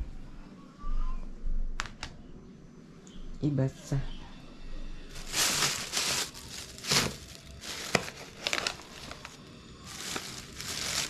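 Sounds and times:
plastic bags rustling and crinkling: 5.1 - 11.0.

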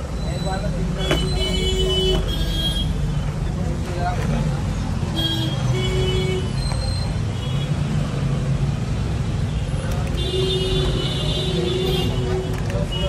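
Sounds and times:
street traffic rumbling: 0.0 - 13.0.

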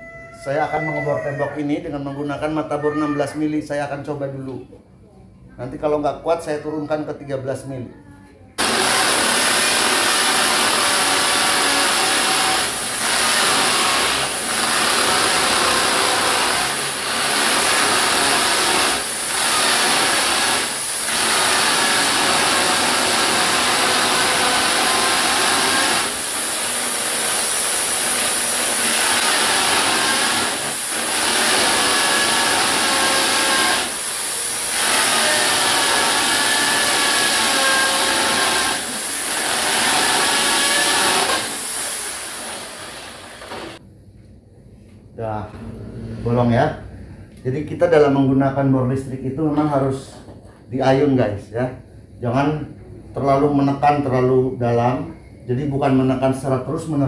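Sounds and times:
hammer drill drilling into masonry: 8.6 - 43.8.

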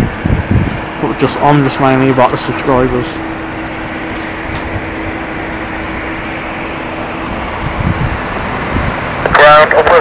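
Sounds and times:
aircraft engines droning: 0.0 - 10.0.

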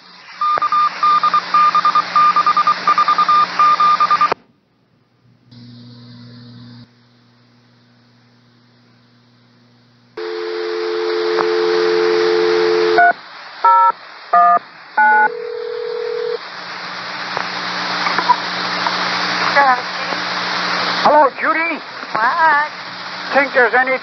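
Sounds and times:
radio static hiss: 0.0 - 4.4, 5.5 - 24.0
touch-tone signalling beeps: 0.4 - 4.4
long single tone: 10.2 - 13.1
two-note radio tone: 10.2 - 13.1.

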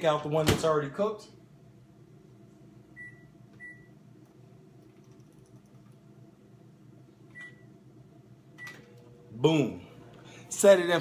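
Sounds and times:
microwave keypad beeping: 3.0 - 4.0, 7.3 - 7.8.

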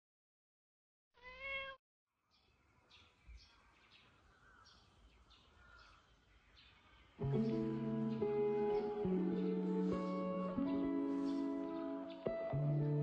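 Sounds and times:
cat meowing: 1.2 - 1.8.

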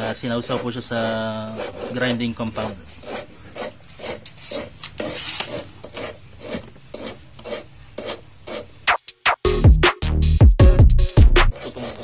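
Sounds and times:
gritty rasping of valve lapping: 0.0 - 8.7.

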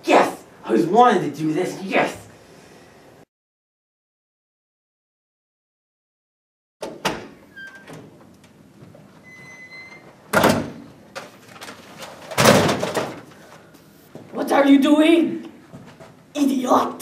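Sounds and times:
door opening: 6.8 - 13.3
thin squeaks: 9.2 - 10.1
handling noise at bookshelf: 11.1 - 14.4.

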